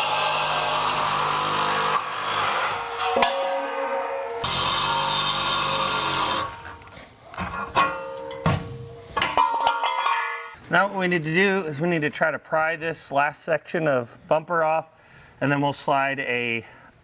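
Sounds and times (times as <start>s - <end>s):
reciprocating saw cutting steel: 0.0s - 6.8s
metal clanks: 2.6s - 5.4s, 6.4s - 10.6s.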